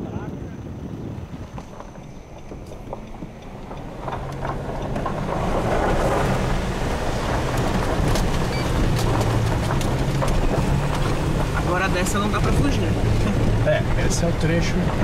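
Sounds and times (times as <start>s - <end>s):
car engine droning under load: 0.0s - 15.0s
tyres on gravel: 1.3s - 15.0s
small clicks and rattles: 1.6s - 13.5s.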